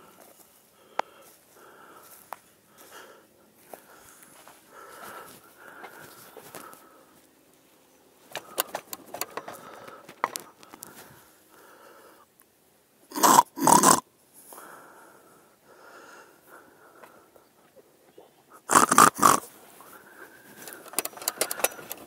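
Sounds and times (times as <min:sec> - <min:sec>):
light crackling and rustling: 0:03.6 - 0:11.4
loud snorts: 0:13.1 - 0:14.0, 0:18.6 - 0:19.5
person snoring: 0:13.1 - 0:14.0, 0:18.6 - 0:19.5.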